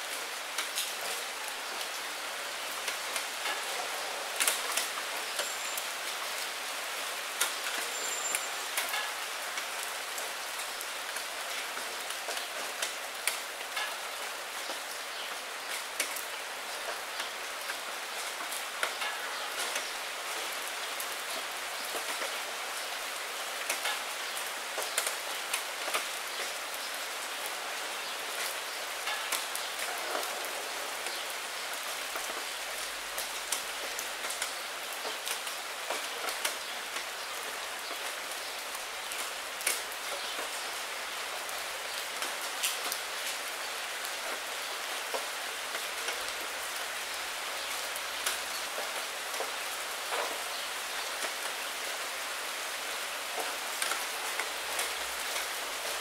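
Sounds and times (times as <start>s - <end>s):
rain against window: 0.1s - 22.9s.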